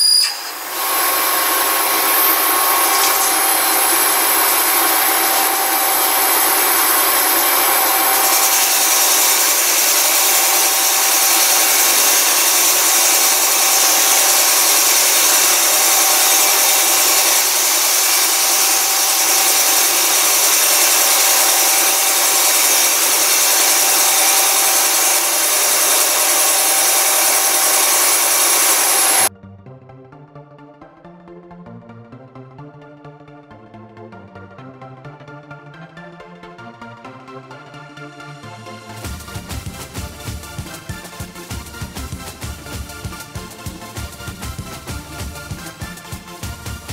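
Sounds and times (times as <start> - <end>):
machine cutting hiss with coolant spray: 0.0 - 29.3, 39.0 - 46.9.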